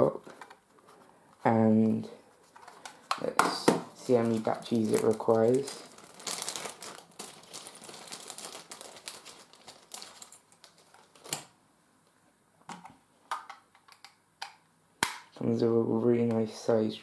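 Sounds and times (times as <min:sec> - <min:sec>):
plastic packaging crinkling: 0:04.0 - 0:11.5.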